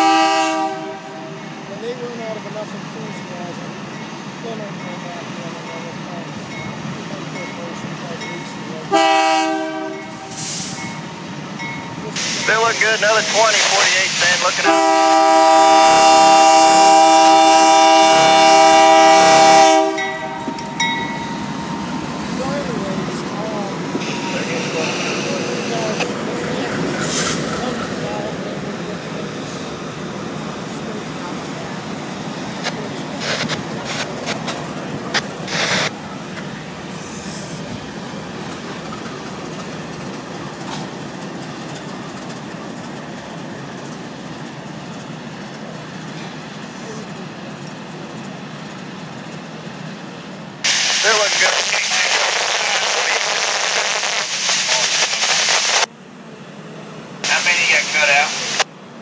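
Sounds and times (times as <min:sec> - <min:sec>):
locomotive air horn: 0:00.0 - 0:01.4, 0:08.9 - 0:10.8, 0:14.6 - 0:20.4
freight train rumbling past: 0:00.0 - 0:50.7.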